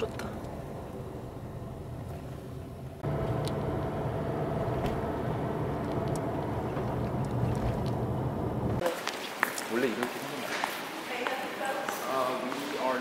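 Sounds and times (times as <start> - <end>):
vehicle engine rumble and hum: 0.0 - 8.8.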